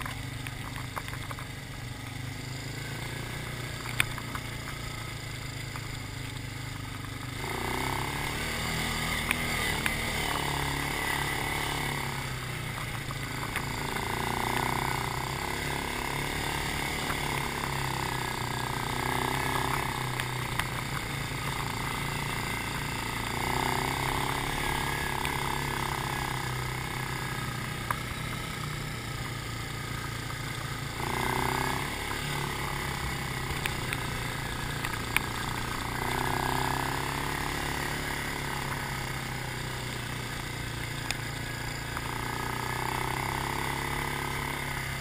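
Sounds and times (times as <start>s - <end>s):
atv engine under throttle: 0.0s - 45.0s.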